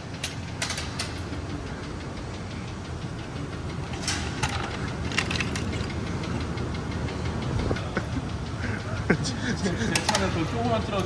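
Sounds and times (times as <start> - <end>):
sharp clicks and knocks: 0.0 - 1.4, 3.6 - 6.9
low rumble of repair shop: 0.0 - 11.0.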